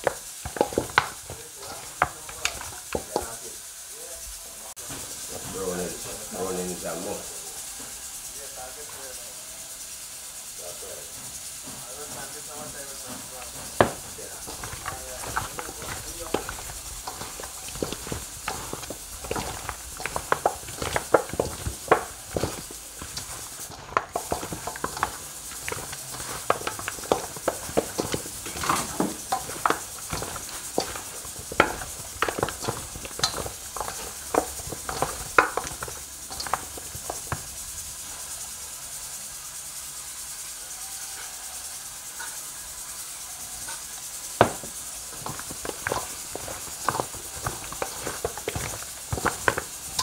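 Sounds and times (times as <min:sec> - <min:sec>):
hands squishing meat in bowl: 0:00.0 - 0:03.4, 0:13.1 - 0:37.5, 0:44.4 - 0:50.0.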